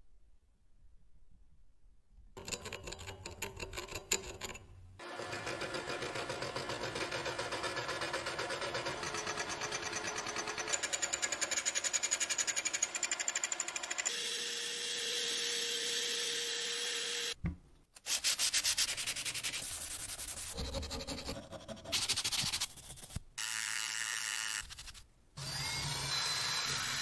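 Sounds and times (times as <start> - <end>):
milling cutter chattering on metal: 5.6 - 14.4.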